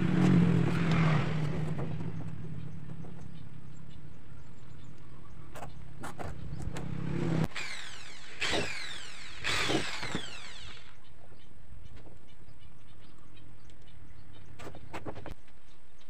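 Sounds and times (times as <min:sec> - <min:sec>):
electric drill boring into wood: 0:06.8 - 0:11.0.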